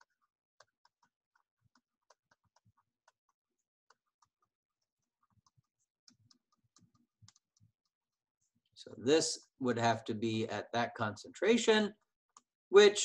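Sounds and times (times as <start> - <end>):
stylus tapping on tablet screen: 0.0 - 8.2.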